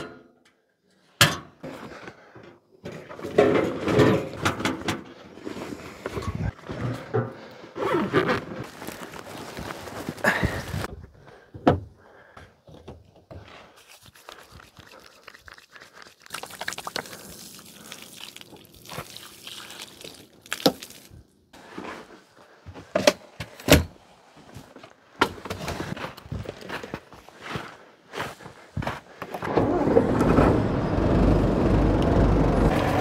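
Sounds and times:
fabric bag rustling: 7.8s - 10.9s
water splashing over hands: 13.9s - 21.2s.

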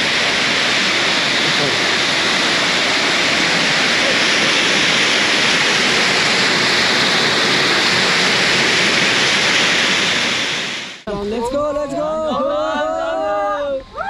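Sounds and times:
waterfall rushing into pool: 0.0s - 11.0s.

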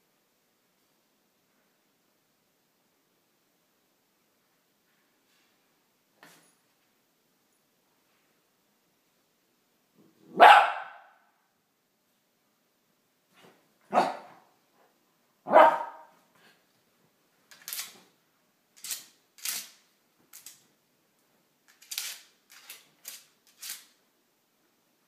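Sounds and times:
dog barking sharply: 10.3s - 11.2s, 13.9s - 14.4s, 15.5s - 16.1s.

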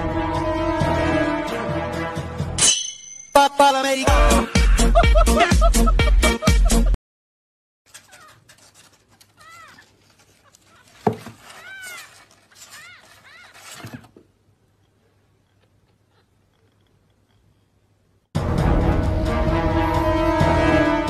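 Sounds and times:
music: 0.0s - 2.6s, 3.4s - 7.0s, 18.4s - 21.0s
cat mewing: 7.9s - 14.1s.

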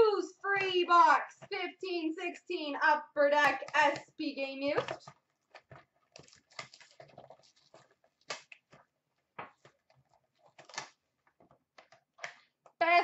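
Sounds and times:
card pack wrappers crinkling: 4.8s - 12.6s.

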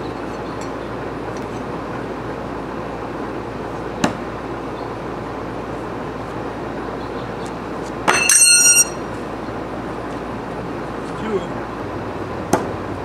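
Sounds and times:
steady background noise: 0.0s - 13.0s
knives striking wooden post: 12.5s - 12.8s.

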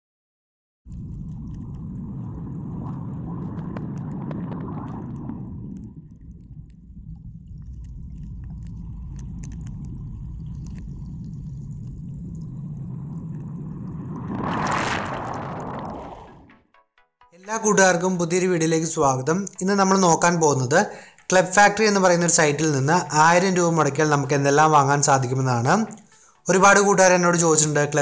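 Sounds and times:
muffled underwater rumble: 0.9s - 16.5s
rush of water and bubbles: 0.9s - 16.6s.

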